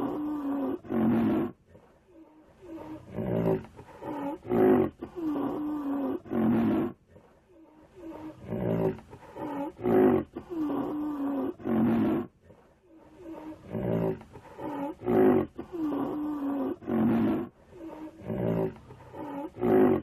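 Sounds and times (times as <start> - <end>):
rhinoceros bellowing grunts: 7.9 - 20.0.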